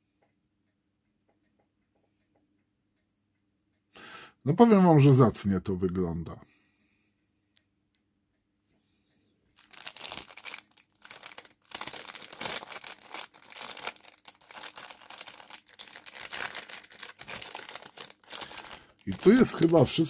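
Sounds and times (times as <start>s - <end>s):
plastic bag crinkling: 9.5s - 20.0s.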